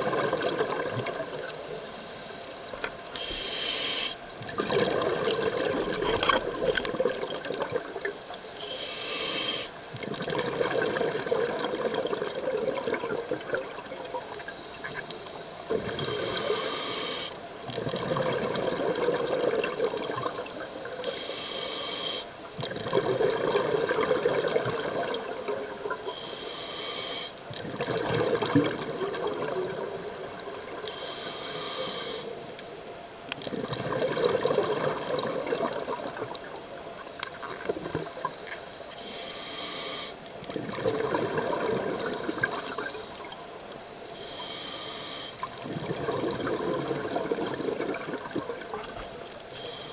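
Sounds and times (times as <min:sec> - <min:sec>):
hissing regulator inhalations: 0:03.1 - 0:04.2, 0:08.6 - 0:09.8, 0:16.0 - 0:17.4, 0:21.0 - 0:22.3, 0:26.1 - 0:27.4, 0:30.9 - 0:32.4, 0:38.2 - 0:40.2, 0:44.2 - 0:45.4, 0:49.5 - 0:49.9
bubbling exhalations: 0:04.5 - 0:08.0, 0:10.0 - 0:13.8, 0:27.6 - 0:29.9, 0:33.4 - 0:36.4, 0:40.5 - 0:43.0, 0:45.5 - 0:49.0.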